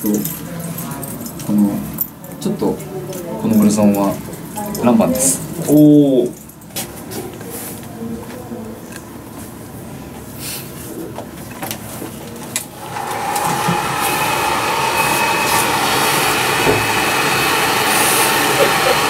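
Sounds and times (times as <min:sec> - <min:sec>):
hair dryer blowing: 0:12.7 - 0:19.0.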